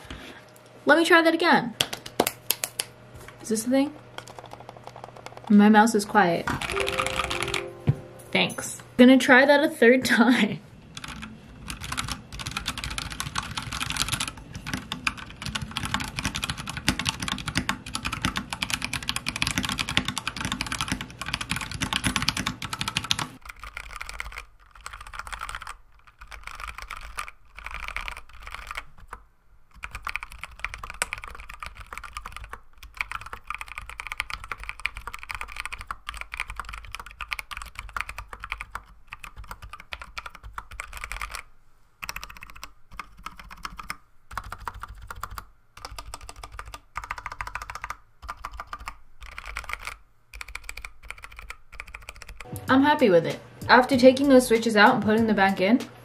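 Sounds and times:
mechanical keyboard typing: 4.2 - 5.6, 6.5 - 7.8, 10.9 - 52.5.

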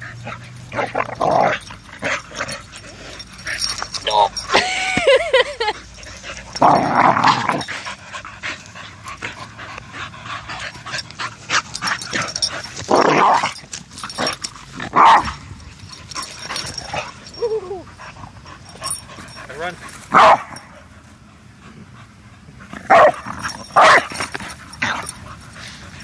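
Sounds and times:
dogs growling: 0.0 - 4.8, 5.6 - 20.9, 21.5 - 26.0
dog whining: 16.5 - 18.1.

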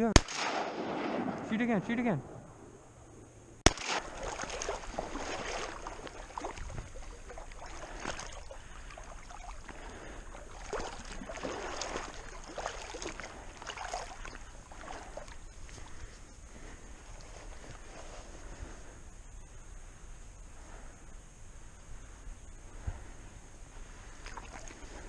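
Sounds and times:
shotgun shot: 0.0 - 1.6, 3.6 - 4.4
wading through shallow water: 3.7 - 19.2, 20.5 - 25.0.

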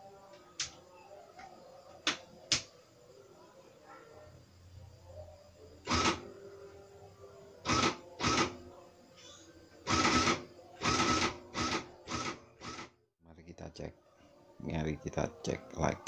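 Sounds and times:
calculator print mechanism printing: 5.9 - 6.3, 7.7 - 8.6, 9.9 - 12.9.

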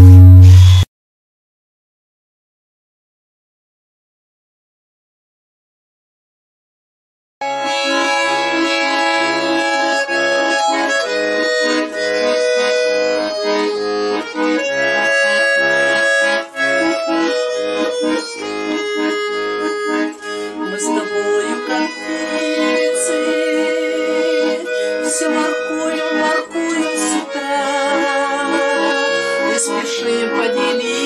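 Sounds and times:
button accordion melody: 0.0 - 0.9, 7.4 - 31.0.

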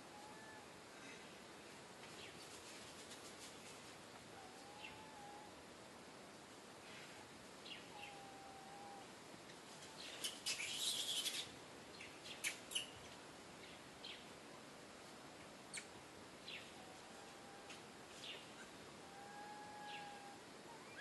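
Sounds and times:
macaque whistled coo: 4.4 - 5.5, 7.9 - 9.1, 19.0 - 21.0
macaque high chirps: 10.2 - 11.5.

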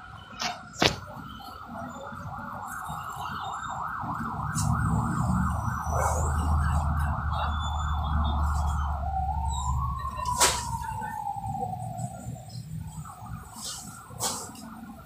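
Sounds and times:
truck engine rumble: 0.0 - 15.0
siren warbling and wailing: 1.2 - 14.1.

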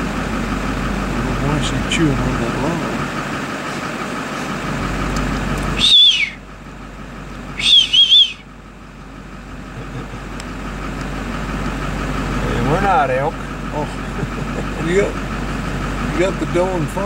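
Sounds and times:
vehicle engine idling: 0.0 - 17.0
high-pitched whistles: 5.8 - 6.4, 7.6 - 8.5.

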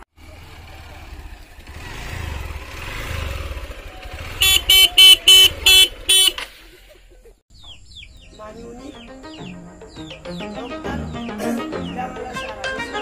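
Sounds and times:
motorcycle engine rumbling: 0.0 - 12.3
motorcycle horn beeps: 4.1 - 6.5.

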